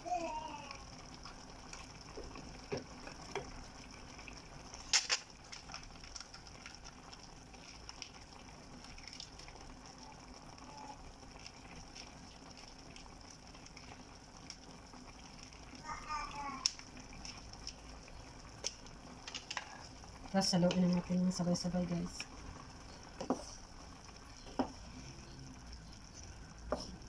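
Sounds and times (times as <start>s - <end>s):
food sizzling in a frying pan: 0.0s - 27.0s
small ticks: 16.6s - 17.8s.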